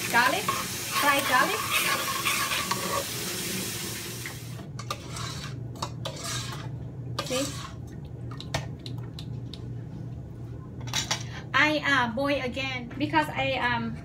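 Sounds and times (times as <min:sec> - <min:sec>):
boiling pot hissing: 0:00.0 - 0:04.6
spoon clinking and scraping pot: 0:00.4 - 0:03.2, 0:04.8 - 0:07.8.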